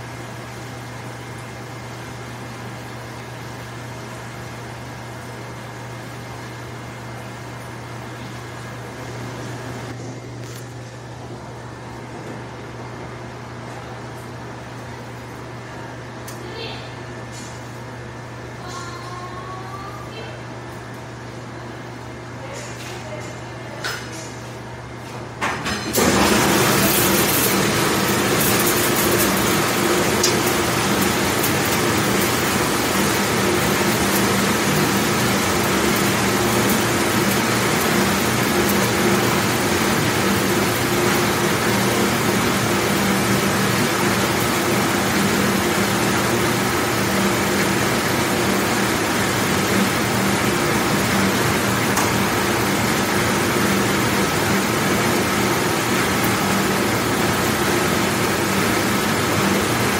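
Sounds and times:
dishwashing machine spraying water: 0:00.0 - 0:10.5, 0:25.6 - 0:59.9.

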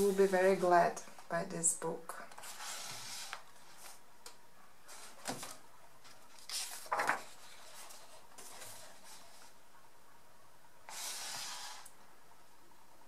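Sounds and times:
paper pages rustling: 0:04.9 - 0:09.6.

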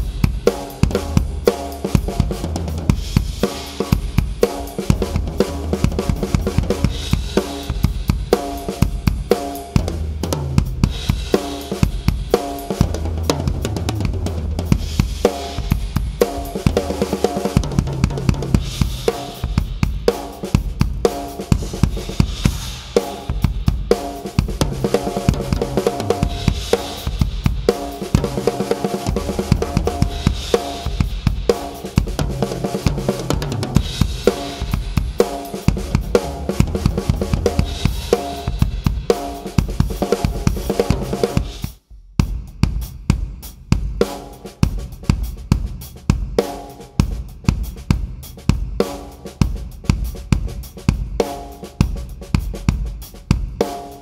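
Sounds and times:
acoustic drum kit groove: 0:00.0 - 0:54.0.

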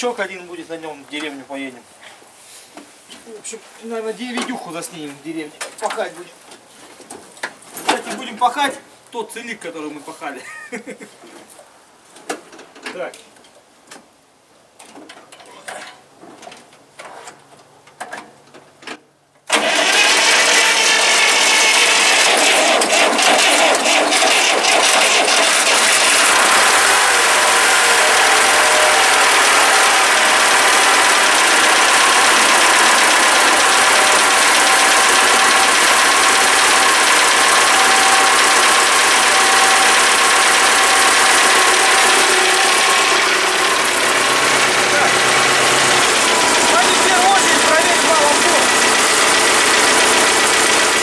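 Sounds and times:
tractor diesel engine starting: 0:19.5 - 0:51.0.

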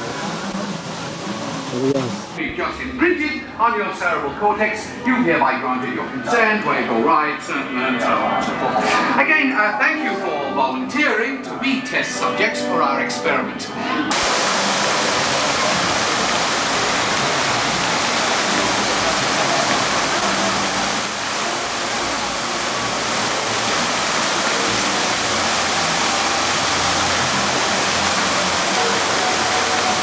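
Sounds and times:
fountain water splashing: 0:00.0 - 0:02.5, 0:14.1 - 0:30.0.

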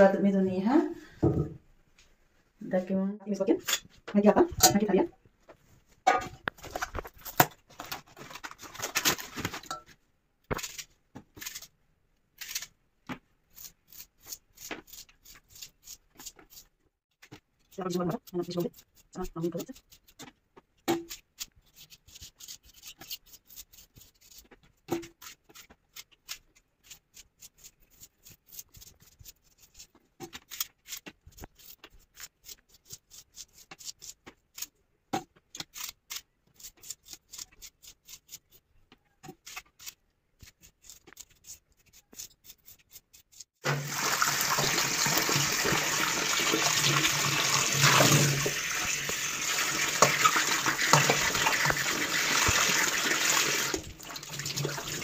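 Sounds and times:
knife cutting vegetables: 0:10.5 - 0:11.7, 0:12.4 - 0:16.8, 0:17.7 - 0:34.8, 0:35.4 - 0:44.0
tap water rushing into steel bowl: 0:43.6 - 0:55.0.

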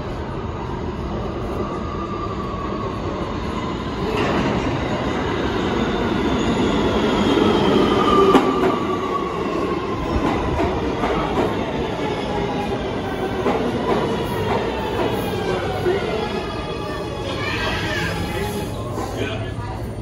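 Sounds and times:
subway train rumble: 0:00.0 - 0:20.0.

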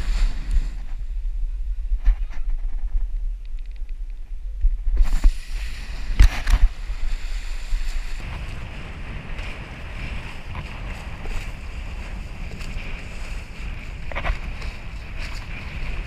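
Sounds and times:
wind buffeting microphone: 0:00.0 - 0:16.0
board rushing through choppy water: 0:05.0 - 0:16.0.

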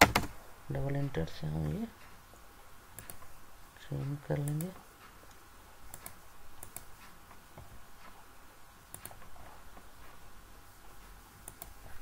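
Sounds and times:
faint room noise: 0:00.0 - 0:12.0
computer mouse clicking: 0:03.0 - 0:03.3, 0:04.4 - 0:07.2, 0:08.9 - 0:09.3, 0:11.4 - 0:12.0.

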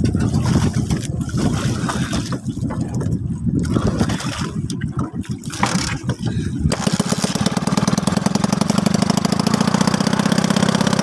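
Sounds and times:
water sloshing against boat hull: 0:00.0 - 0:07.7.

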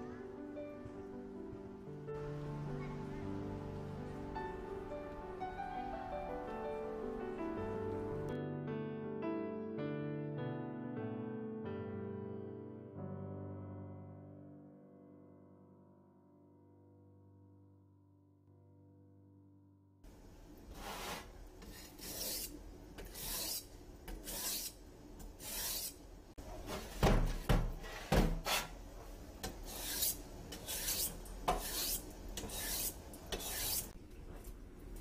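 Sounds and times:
soft piano music: 0:00.0 - 0:20.0
knife scraping on whetstone: 0:20.7 - 0:26.0, 0:29.4 - 0:34.0.

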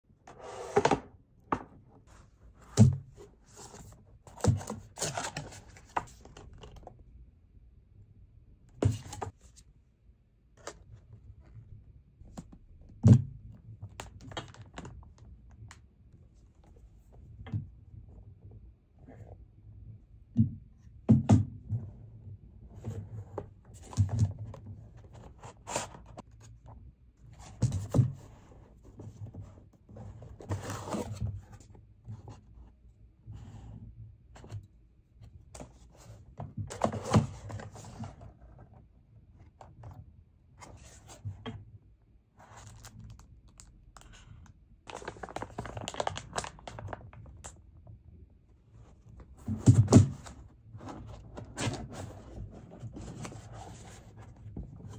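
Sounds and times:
cardboard packaging rustling: 0:44.9 - 0:47.3.

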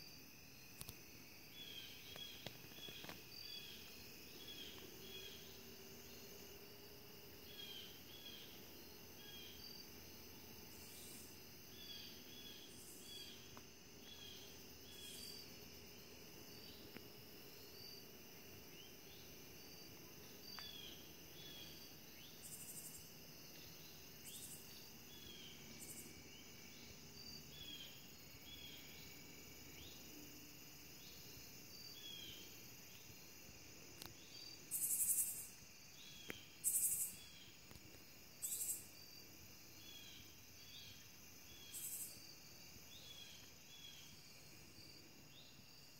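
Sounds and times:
short insect chirps: 0:00.0 - 0:06.7, 0:10.7 - 0:18.0, 0:20.3 - 0:30.2, 0:33.9 - 0:45.9
crickets trilling: 0:00.0 - 0:45.9.

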